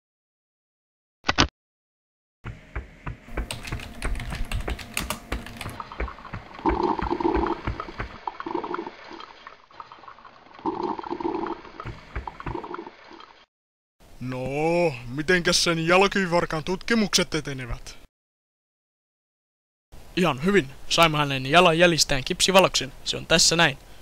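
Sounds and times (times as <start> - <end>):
drink pouring: 5.7 - 13.2.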